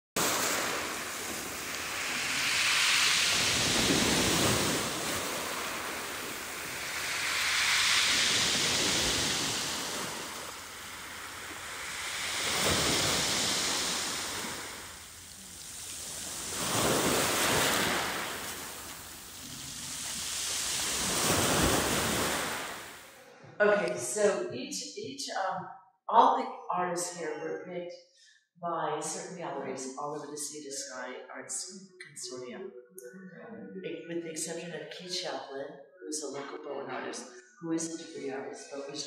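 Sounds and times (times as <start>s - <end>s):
ocean waves washing on shore: 0.2s - 23.1s.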